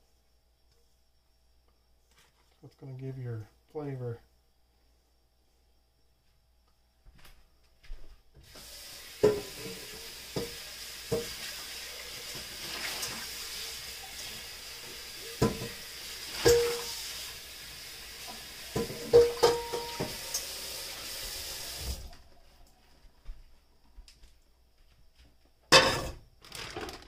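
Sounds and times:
tap water running: 8.4 - 22.2
dishes clinking: 16.4 - 16.9, 18.7 - 20.2.

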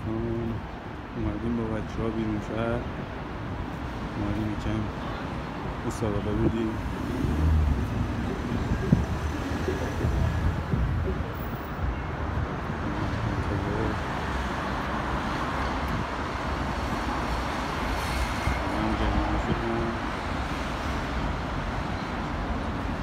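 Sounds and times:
city traffic rumble: 0.0 - 23.0
faint voices: 4.1 - 14.4.

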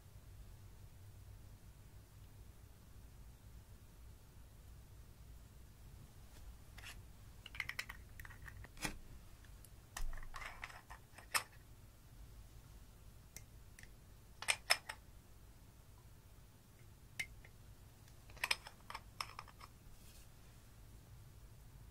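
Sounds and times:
soft rustle: 5.9 - 7.5, 18.4 - 20.8.

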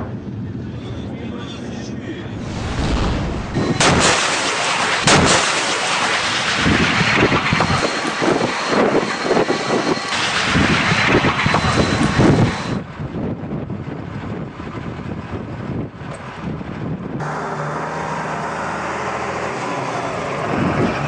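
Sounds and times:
loud rushing rumbling noise: 2.0 - 5.4
weapon blast cracks: 2.3 - 6.4.

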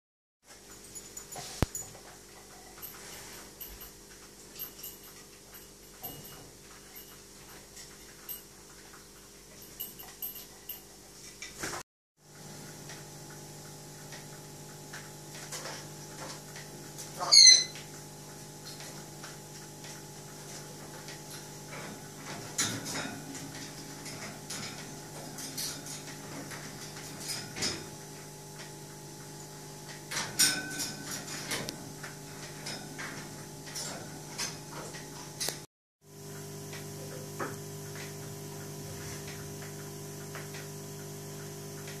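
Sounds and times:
steady mechanical hum: 0.5 - 42.0
parrot whistling: 17.2 - 17.7.

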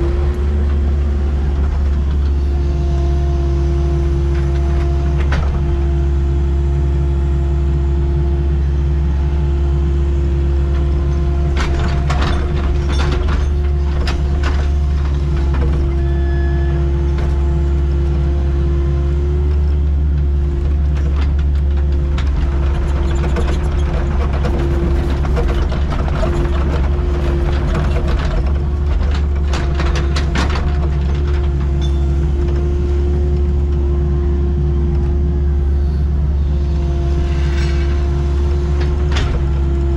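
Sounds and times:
diesel engine running: 0.0 - 39.9
steady engine tone: 26.6 - 39.9.

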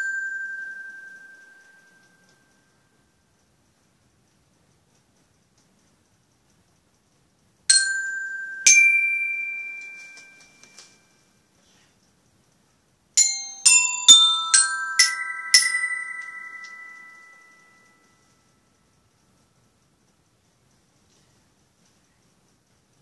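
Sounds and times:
glockenspiel notes ringing: 0.0 - 2.3, 7.7 - 11.0, 13.2 - 18.4.

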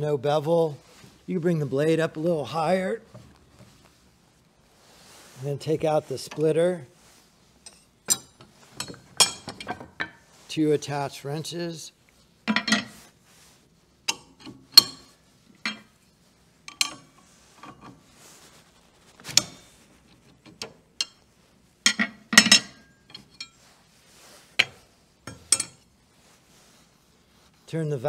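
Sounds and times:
steel wrenches clinking: 7.6 - 10.3, 12.5 - 13.0, 14.1 - 15.9, 16.7 - 18.0, 19.3 - 21.3, 21.9 - 23.6, 24.6 - 25.9.

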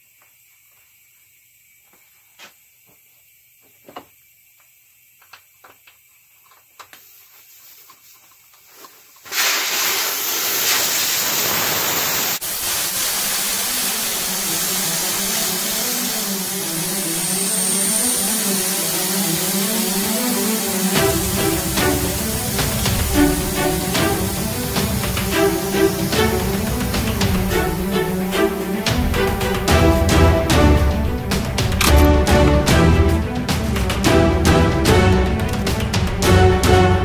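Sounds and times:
air hissing out of tire: 8.7 - 32.1.

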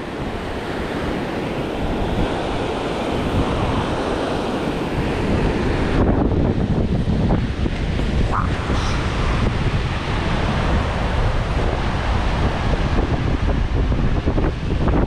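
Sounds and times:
ocean surf breaking on rocks: 0.0 - 15.0
wind rumbling on microphone: 0.0 - 15.0.

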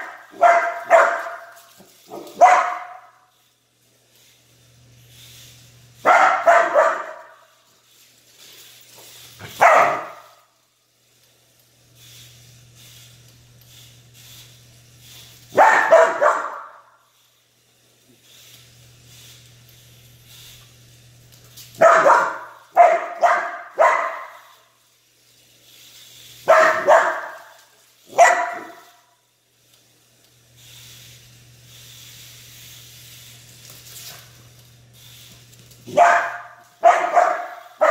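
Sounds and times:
puppy barking: 0.0 - 1.5, 2.1 - 3.2, 6.0 - 7.4, 9.5 - 10.3, 15.5 - 16.9, 21.8 - 24.5, 26.5 - 27.5, 28.1 - 28.8, 35.9 - 37.9.

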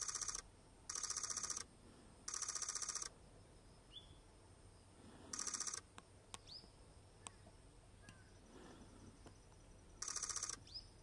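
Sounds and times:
cicada buzzing: 0.0 - 1.7, 2.3 - 3.2, 5.3 - 5.9, 9.9 - 10.7
bird chirps: 2.3 - 11.0
camera shutter clicks: 5.3 - 5.9.

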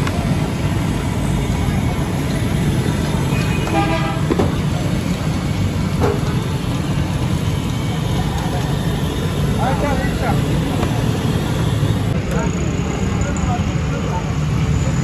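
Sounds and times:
street traffic rumble: 0.0 - 15.0
vehicle horn tooting: 3.3 - 4.3.

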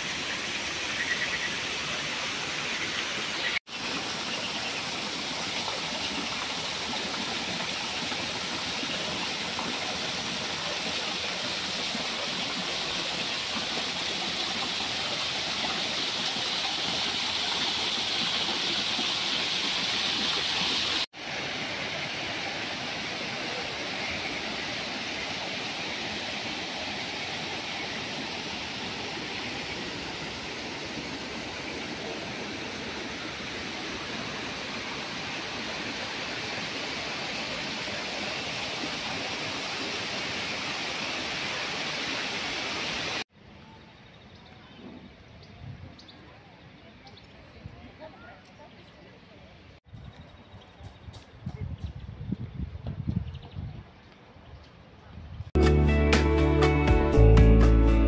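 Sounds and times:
waterfall splashing over rocks: 0.0 - 43.3.

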